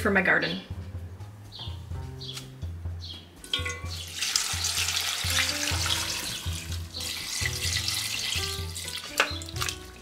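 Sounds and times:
background music: 0.0s - 10.0s
water pouring into a pot: 3.6s - 10.0s.

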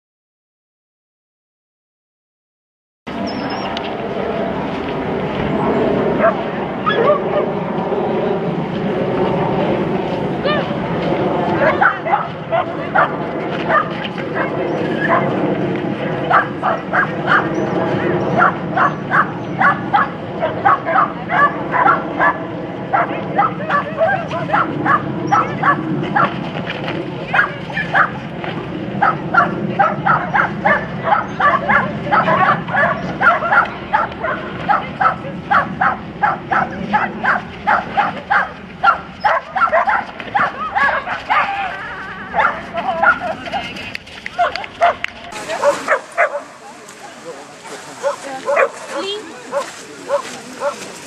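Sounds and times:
dog yapping: 6.2s - 7.5s, 11.6s - 15.2s, 18.4s - 26.3s, 29.0s - 41.6s, 42.3s - 43.4s, 45.6s - 46.5s.

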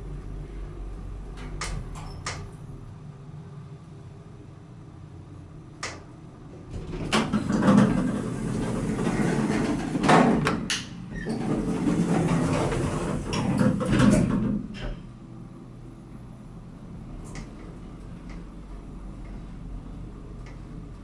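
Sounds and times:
elevator low rumble: 0.0s - 21.0s
elevator doors sliding closed: 5.9s - 15.4s.

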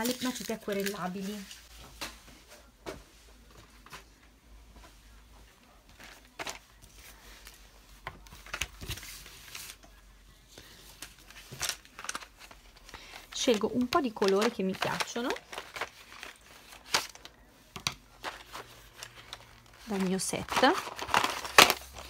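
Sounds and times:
card and plastic handled on wooden table: 10.9s - 22.0s.

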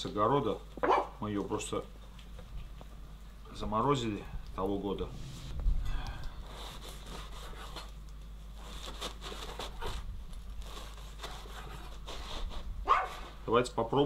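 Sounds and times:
herbs rustling and scraping: 4.6s - 13.4s.

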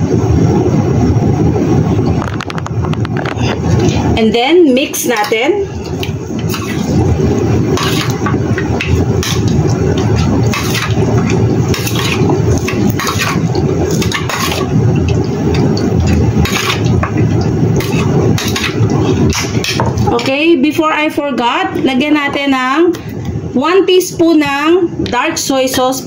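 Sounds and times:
wet stirring: 5.0s - 20.2s.

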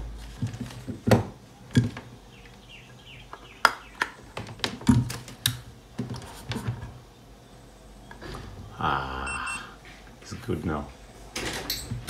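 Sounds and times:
faint high chirps: 8.9s - 9.8s.

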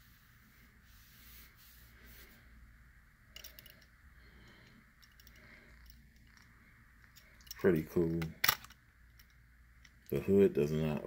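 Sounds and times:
faint clicks and handling noise: 3.3s - 11.0s.

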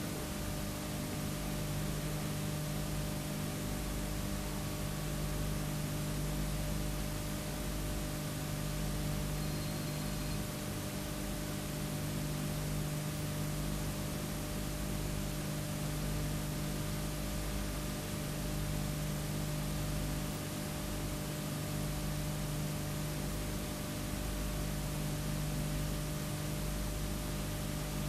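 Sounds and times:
electrical mains hum: 0.0s - 28.0s.

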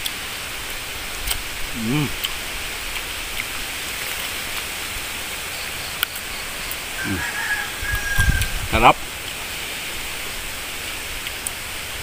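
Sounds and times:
outdoor background hiss: 0.0s - 12.0s
fruit being bitten open: 1.2s - 4.7s, 7.9s - 8.6s.

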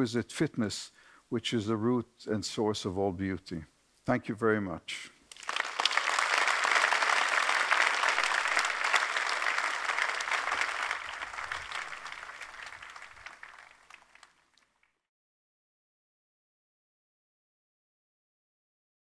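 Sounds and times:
audience applauding: 5.3s - 15.0s.

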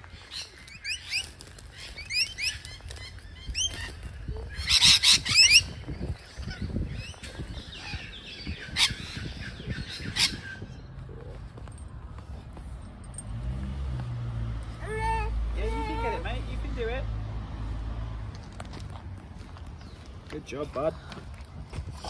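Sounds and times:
lorikeets screeching: 0.0s - 11.4s, 14.8s - 16.9s.

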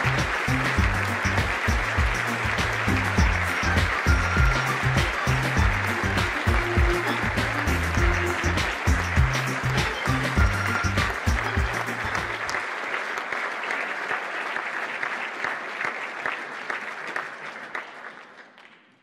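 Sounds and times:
background music: 0.0s - 12.6s
crowd applauding: 0.0s - 19.0s.

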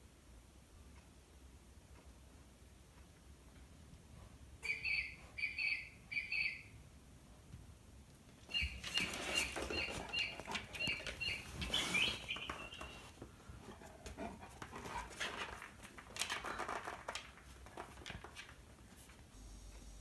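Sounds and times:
bird call from a wall clock: 4.6s - 6.7s, 8.5s - 13.1s
dog moving on a wooden floor: 8.6s - 19.2s.

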